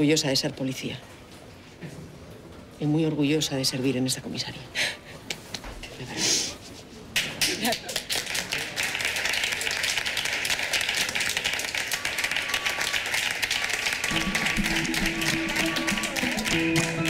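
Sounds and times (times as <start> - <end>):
crowd clapping: 7.1 - 17.0.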